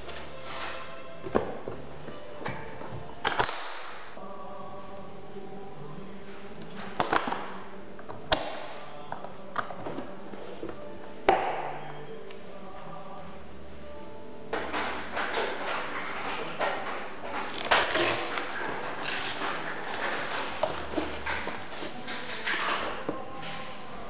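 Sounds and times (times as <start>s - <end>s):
metal latch clicks: 2.4s - 4.0s.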